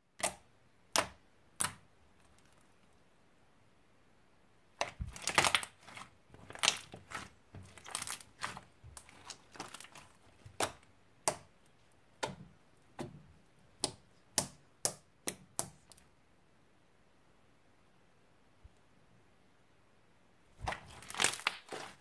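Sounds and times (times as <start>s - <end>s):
air pockets popping in slime: 4.8s - 10.8s, 20.6s - 22.0s.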